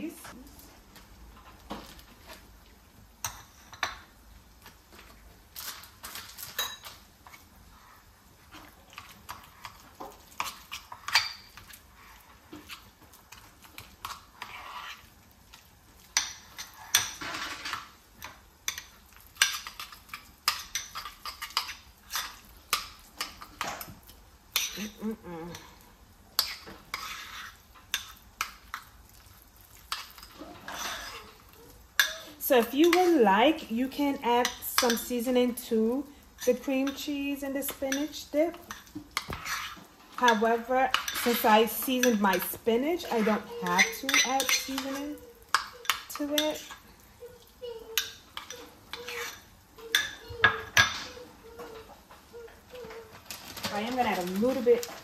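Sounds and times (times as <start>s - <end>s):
fork scraping a bowl: 8.6s - 15.2s, 26.4s - 28.2s, 29.9s - 31.4s, 38.7s - 42.4s, 43.0s - 46.8s, 47.9s - 51.7s.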